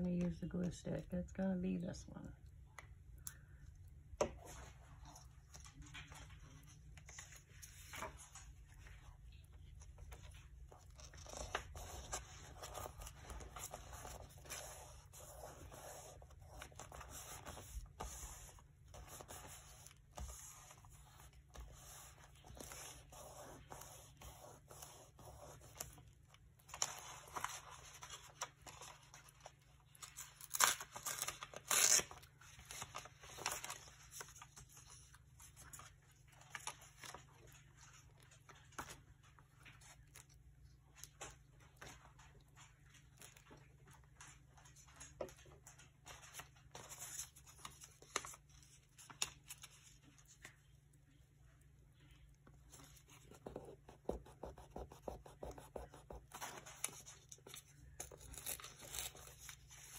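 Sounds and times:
paper rustling and tearing: 9.8s - 39.1s, 55.2s - 59.9s.

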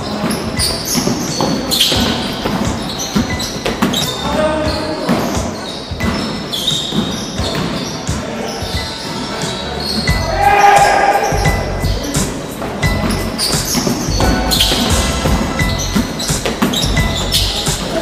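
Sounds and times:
basketball bouncing on wooden floor: 0.0s - 8.9s, 11.3s - 18.0s
sneaker squeaks: 0.0s - 18.0s.

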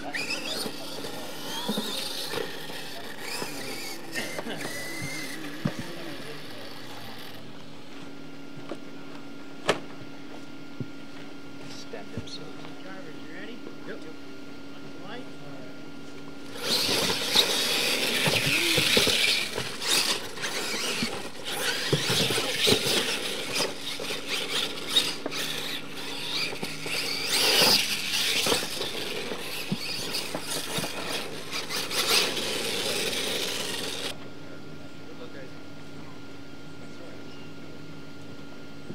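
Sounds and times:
tyres scrabbling on dirt: 0.0s - 7.6s, 16.5s - 34.2s
toy truck motor whine: 0.0s - 7.9s, 16.4s - 34.2s.

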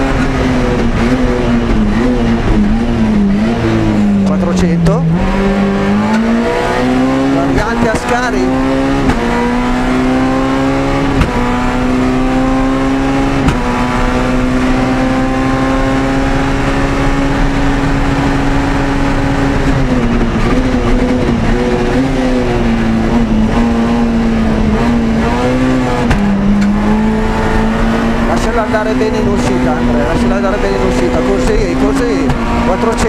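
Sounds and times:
rally car engine at full throttle: 0.0s - 33.0s.

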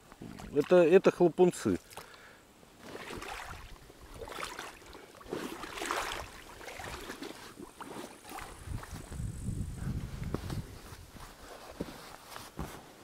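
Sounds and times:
wading steps splashing in water: 0.1s - 9.1s.

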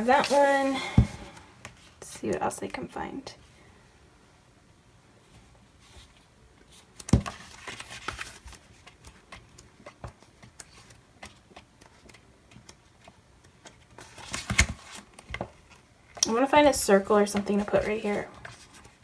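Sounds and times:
stiff paper pages turning: 6.7s - 15.9s.

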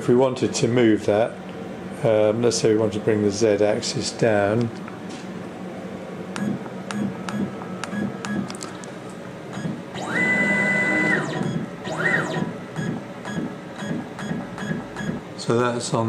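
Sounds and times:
stepper motor whine: 9.5s - 15.2s.

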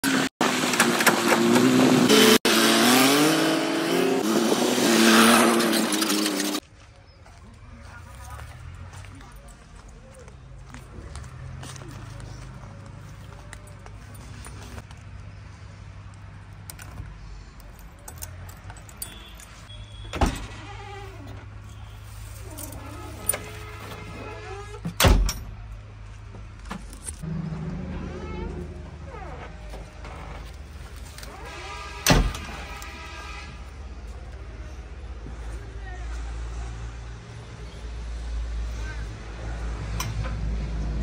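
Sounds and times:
vehicle engine revving: 0.0s - 6.6s.

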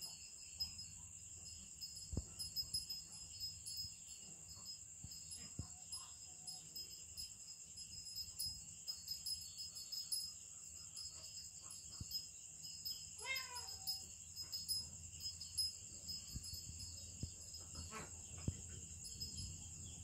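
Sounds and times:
night insects trilling: 0.0s - 20.0s
cat meowing: 13.2s - 14.0s.

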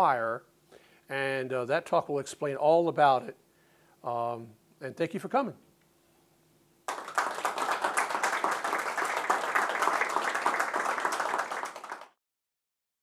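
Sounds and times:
audience applauding: 6.9s - 12.2s.

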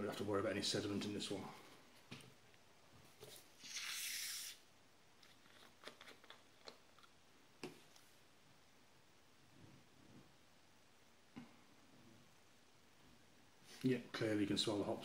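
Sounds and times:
gas hissing from bottle: 3.6s - 4.6s.

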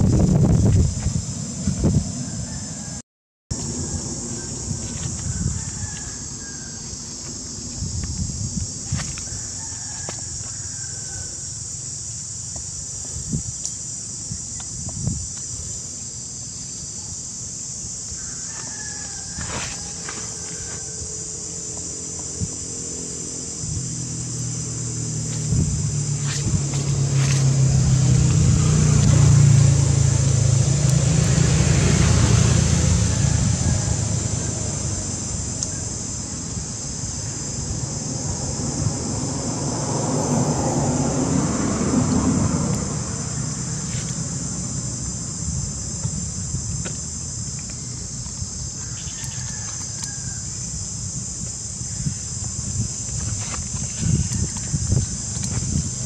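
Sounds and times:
high insect drone: 0.0s - 56.0s
vehicle engine passing: 19.5s - 36.7s, 37.4s - 46.0s.

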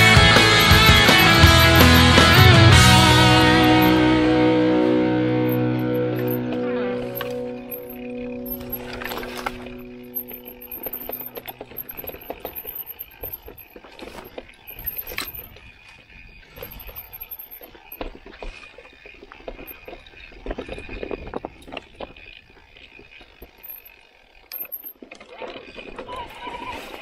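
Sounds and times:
bike rattling over rough ground: 0.0s - 27.0s.

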